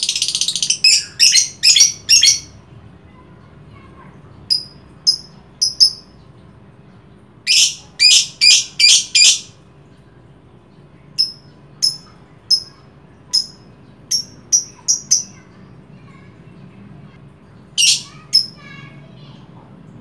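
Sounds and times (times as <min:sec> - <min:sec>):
lovebird chirping: 0:00.0 - 0:02.6, 0:04.5 - 0:06.2, 0:07.4 - 0:09.6, 0:11.2 - 0:15.6, 0:17.8 - 0:18.6.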